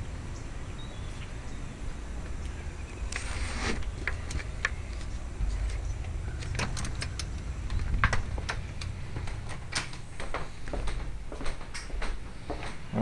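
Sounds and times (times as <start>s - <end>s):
rustle: 2.2s - 7.4s
low microphone rumble: 3.8s - 11.6s.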